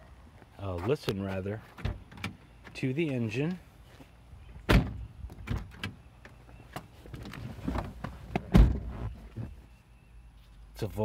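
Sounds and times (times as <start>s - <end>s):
knocks and thumps in car cabin: 7.2s - 9.6s.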